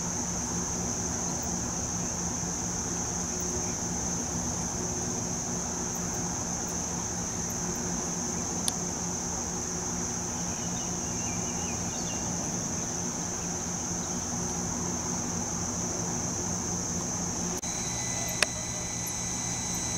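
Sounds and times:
low steady hum: 0.0 - 19.9
night insects shrilling: 0.1 - 19.9
sharp click: 17.6 - 19.9.

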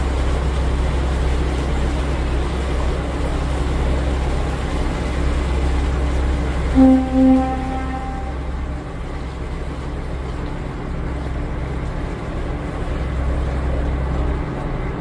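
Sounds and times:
boat engine droning: 0.0 - 15.0
boat horn blast: 6.6 - 9.4.

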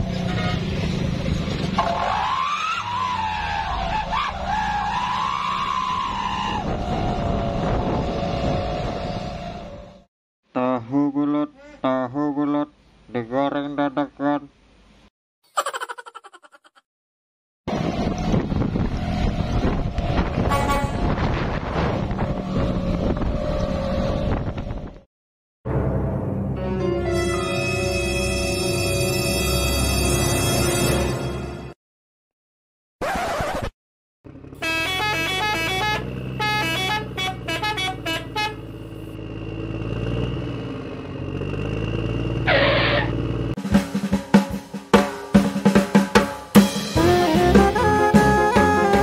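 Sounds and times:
truck horn toot: 0.0 - 0.8, 20.4 - 21.3, 27.0 - 29.9, 34.6 - 39.0
truck engine rumble: 0.0 - 4.9, 17.7 - 25.0, 34.3 - 43.6.

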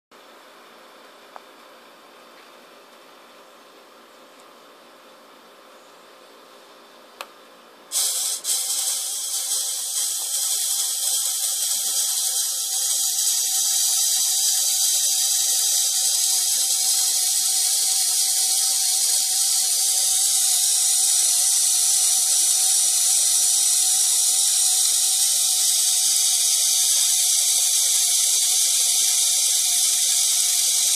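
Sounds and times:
toy motor whirring: 7.9 - 30.9.

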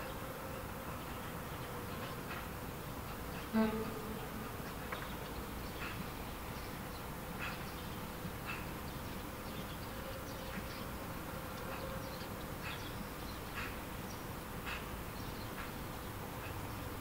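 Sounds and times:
faint steady hum: 0.0 - 17.0.

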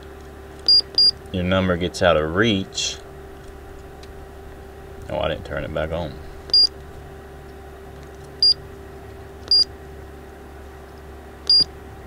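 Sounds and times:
steady low hum: 0.0 - 12.0
short high-pitched beeps: 0.7 - 1.2, 6.5 - 6.7, 8.4 - 8.6, 9.5 - 9.7, 11.5 - 11.7.

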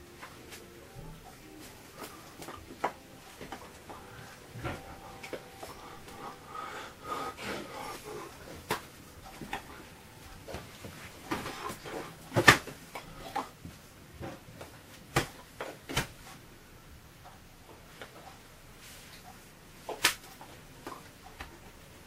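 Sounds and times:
rustling and breathy noises: 0.0 - 15.1
hands clapping and slapping chest: 8.6 - 9.7, 19.9 - 21.5.

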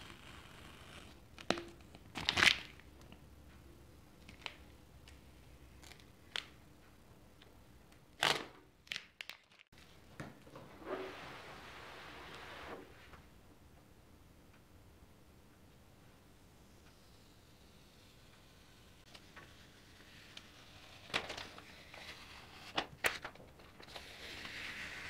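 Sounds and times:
tape tearing and crinkling: 2.1 - 2.8, 8.2 - 9.7.

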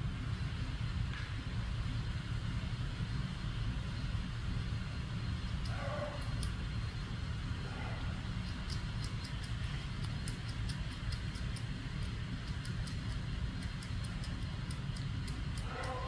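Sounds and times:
squirrel gnawing at a nut: 5.2 - 16.0.

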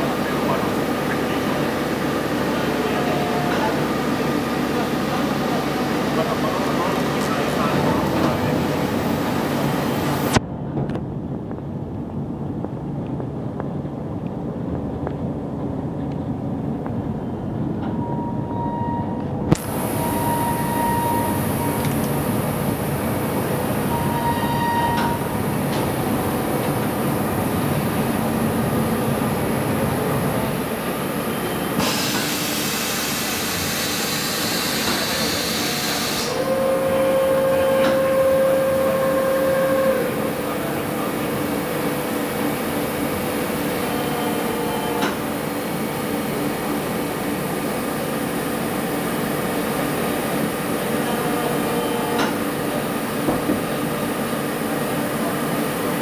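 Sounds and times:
machine whine: 17.0 - 54.4
boring machine humming: 17.1 - 56.0
machine hiss: 31.8 - 36.4.

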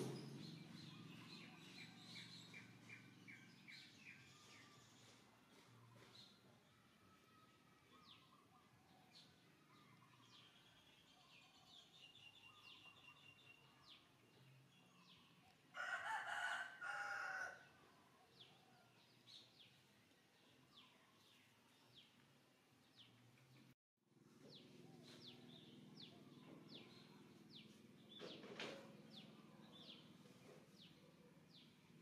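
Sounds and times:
small birds chirping: 0.0 - 6.8, 7.8 - 15.9, 17.7 - 32.0
rooster crowing: 15.8 - 17.8.

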